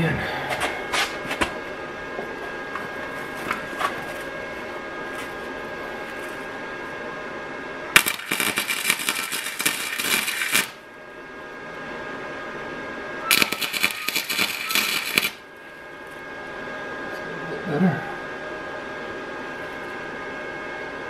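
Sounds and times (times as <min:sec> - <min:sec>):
welder arc crackling: 0:07.9 - 0:10.9, 0:13.3 - 0:15.6.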